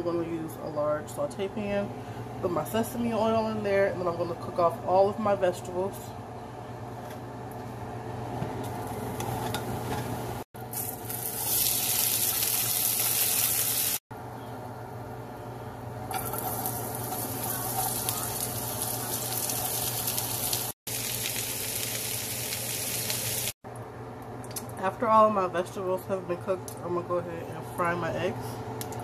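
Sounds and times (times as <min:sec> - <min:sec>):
vegetables sizzling in oil: 0:10.6 - 0:14.0, 0:16.1 - 0:23.6.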